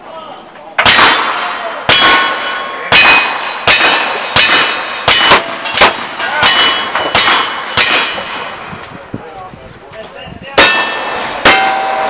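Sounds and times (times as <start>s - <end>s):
rifle shots: 0.8s - 8.6s, 10.6s - 12.0s
steel target ringing: 0.8s - 8.6s, 10.6s - 12.0s.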